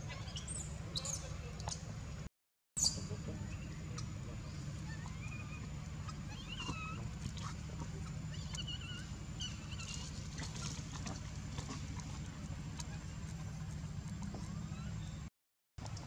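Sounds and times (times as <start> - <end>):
high squeaky animal calls: 0.0 - 1.3, 4.8 - 7.5, 8.2 - 10.5
low rumble: 2.9 - 15.3.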